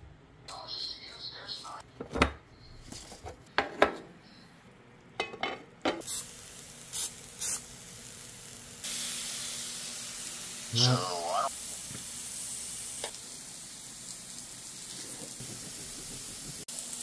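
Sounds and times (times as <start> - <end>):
meat sizzling on grill pan: 6.0 - 17.0.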